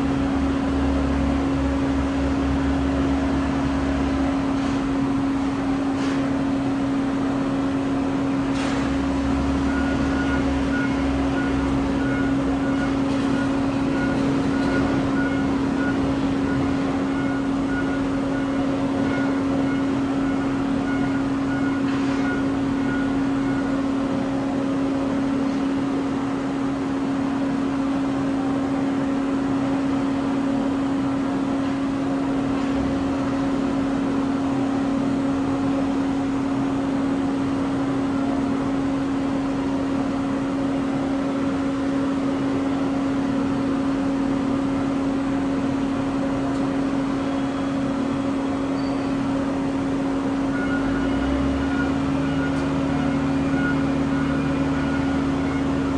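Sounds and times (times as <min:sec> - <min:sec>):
low machinery hum: 0:00.0 - 0:55.9.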